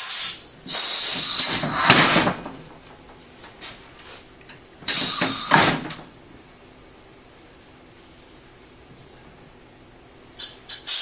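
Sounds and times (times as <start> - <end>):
pressurised air hissing: 0.0 - 2.8, 4.8 - 6.1, 10.7 - 11.0.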